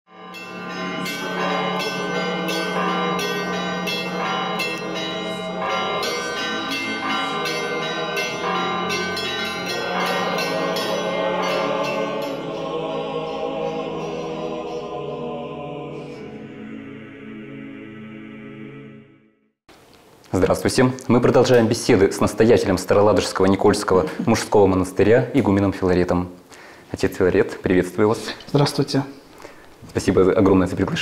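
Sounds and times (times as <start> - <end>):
small church bells striking: 0.1 - 14.9
large bell humming: 0.1 - 15.5.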